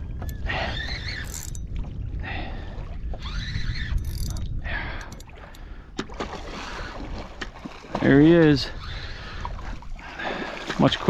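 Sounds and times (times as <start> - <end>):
wind on microphone: 0.0 - 10.7.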